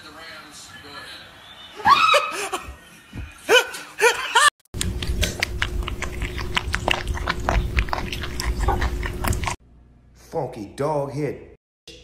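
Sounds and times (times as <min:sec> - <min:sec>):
person laughing: 0:03.5 - 0:04.6
kittens chewing from metal bowl: 0:04.8 - 0:09.6.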